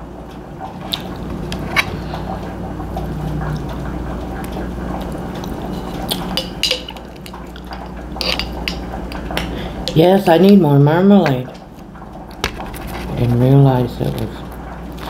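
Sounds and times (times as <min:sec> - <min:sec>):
cutlery clicking against plate: 0:05.7 - 0:10.0.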